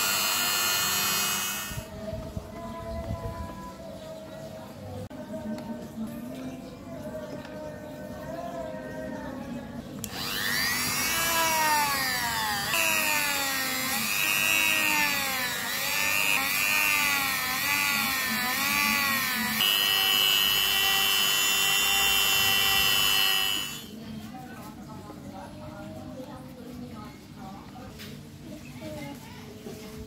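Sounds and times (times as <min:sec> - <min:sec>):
rotary tool sanding plastic: 0:00.0 - 0:01.9, 0:10.0 - 0:23.9.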